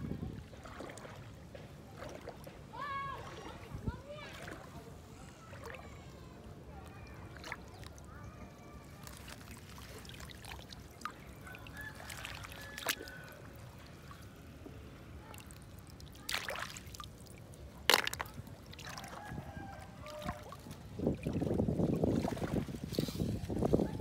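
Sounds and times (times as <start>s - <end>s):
water splashes: 0.0s - 8.2s, 8.8s - 24.0s
water trickling and dripping: 9.0s - 22.7s.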